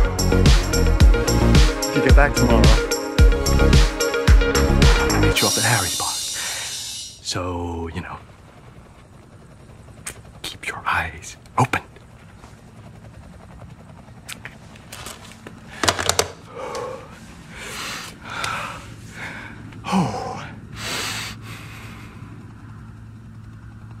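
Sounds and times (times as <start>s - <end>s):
man moaning: 4.8s - 5.4s, 19.8s - 20.6s
man gasping breaths: 6.2s - 7.0s, 15.7s - 22.4s.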